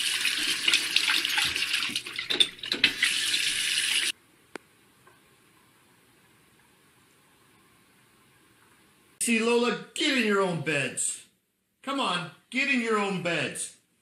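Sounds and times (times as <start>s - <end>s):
water running from faucet: 0.0s - 4.1s.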